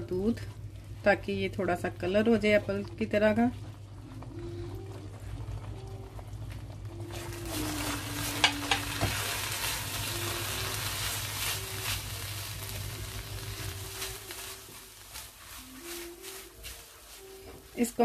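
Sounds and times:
spatula stirring and scraping: 0.0s - 18.0s
milk sizzling in a pan: 6.0s - 18.0s.

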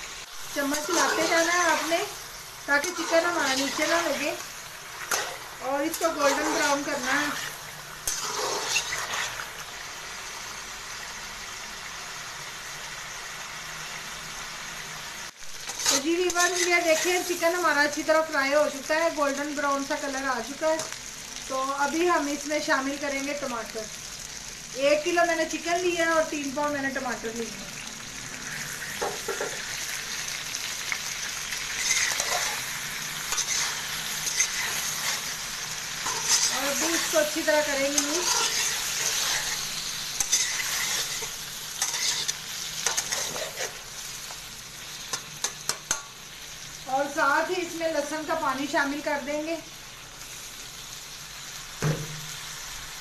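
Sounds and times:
chicken sizzling in hot fat: 0.0s - 53.0s
spoon stirring in pan: 0.6s - 2.0s, 2.8s - 9.5s, 31.7s - 43.9s.

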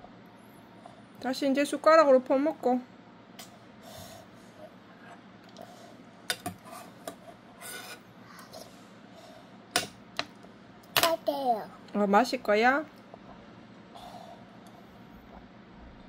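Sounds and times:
metal spoon scraping bowl: 7.6s - 8.1s.

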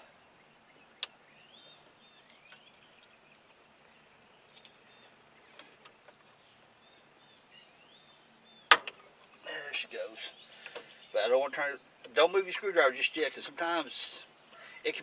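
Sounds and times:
faint bird chirps: 0.0s - 8.7s, 9.4s - 12.0s.

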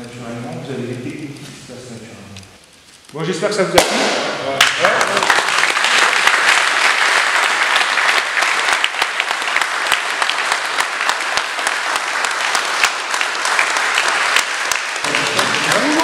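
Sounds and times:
group of people applauding: 4.6s - 16.0s.

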